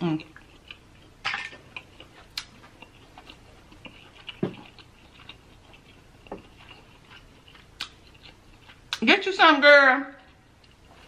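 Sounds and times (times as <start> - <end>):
mouth chewing wet clicks: 0.2 - 9.0.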